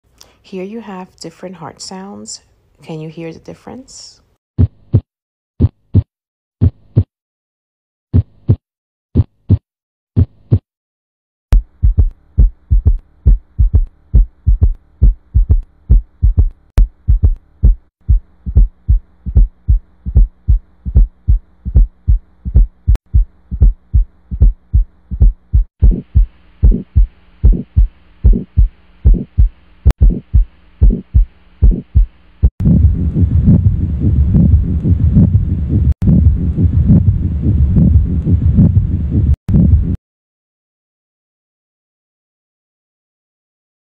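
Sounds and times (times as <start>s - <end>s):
heartbeats through stethoscope: 4.6s - 7.1s, 8.1s - 8.6s, 9.2s - 9.6s, 10.2s - 10.6s, 11.6s - 40.0s.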